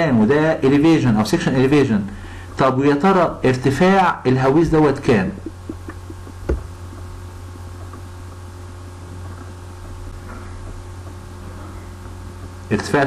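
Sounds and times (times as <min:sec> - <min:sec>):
electrical mains hum: 0:00.0 - 0:13.0
short knock: 0:06.4 - 0:06.8.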